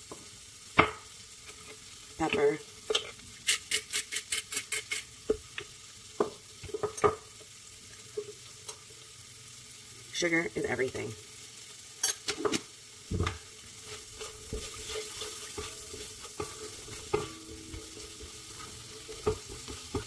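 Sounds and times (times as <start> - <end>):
shrimp sizzling in a wok: 0.0 - 20.0
spatula scraping a wok: 2.9 - 5.2, 13.7 - 20.0
spatula knocking against wok: 14.4 - 20.0.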